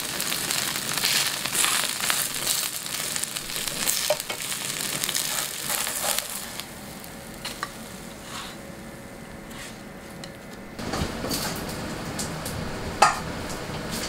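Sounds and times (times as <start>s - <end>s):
pancake sizzling in oil: 0.0s - 8.5s
spatula scraping pan: 3.6s - 6.6s, 7.6s - 8.6s, 9.5s - 9.9s.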